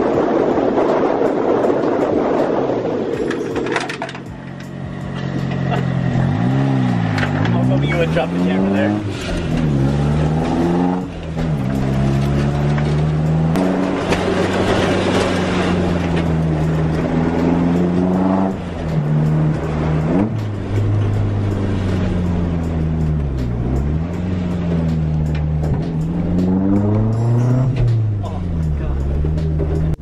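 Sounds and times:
car engine revving: 0:01.4 - 0:30.0.

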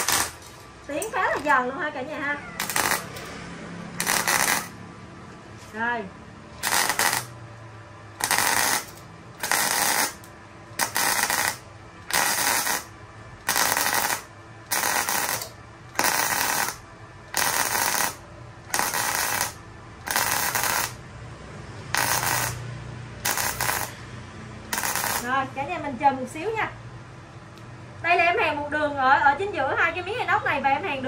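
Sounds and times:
welding arc bursts: 0:00.0 - 0:00.6, 0:02.6 - 0:03.3, 0:04.0 - 0:04.8, 0:06.6 - 0:07.4, 0:08.2 - 0:21.0, 0:21.9 - 0:24.0, 0:24.7 - 0:25.4.

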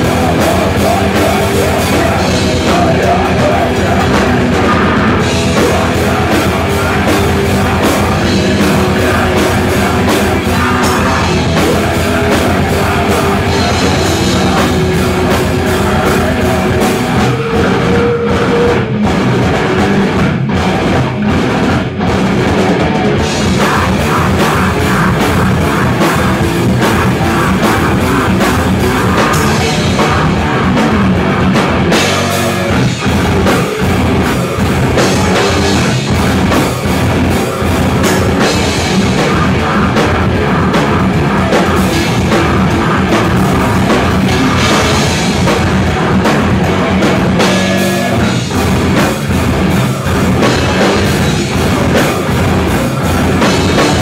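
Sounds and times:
drum kit beating: 0:00.0 - 0:54.0
electric guitar: 0:00.0 - 0:54.0.

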